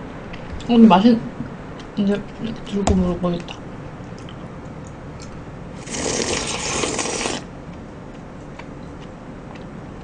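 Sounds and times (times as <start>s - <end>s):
crackly eating of shaved ice: 5.8s - 7.5s.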